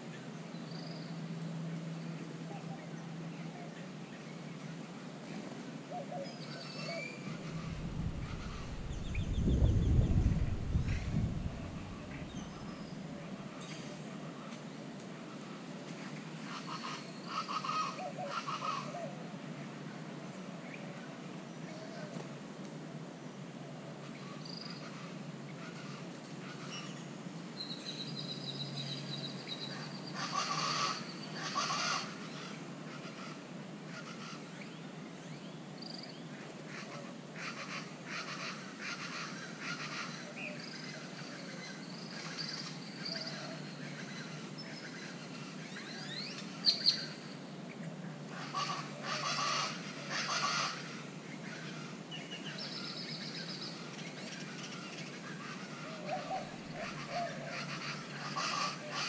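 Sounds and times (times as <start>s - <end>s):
harsh bird calls: 6.0s - 13.0s, 48.3s - 59.0s.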